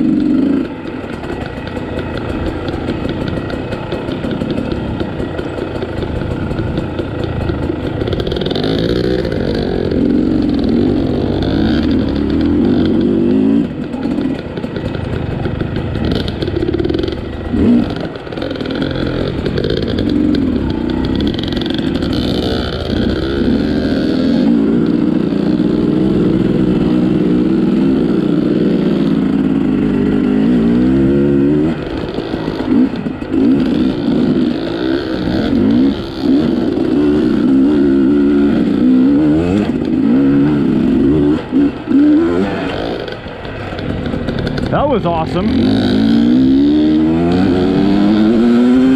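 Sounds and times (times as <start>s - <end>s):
dirt bike engine revving: 0.0s - 48.9s.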